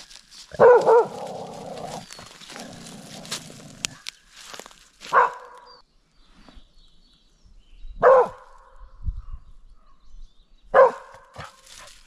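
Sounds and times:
dog barking: 0.5 - 1.6, 5.1 - 5.7, 8.0 - 8.7, 10.7 - 11.9.

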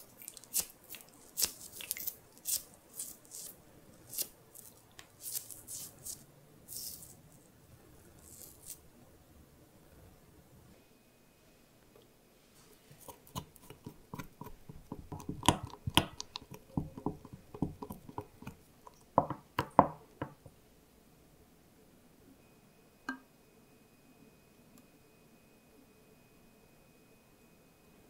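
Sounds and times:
stick tapping against glass cup: 13.3 - 20.4.

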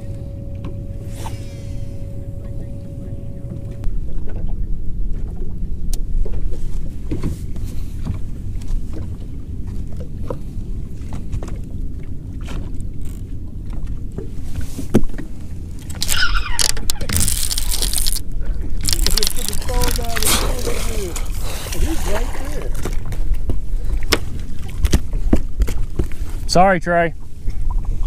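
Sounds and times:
boat engine low rumble: 0.0 - 28.0.

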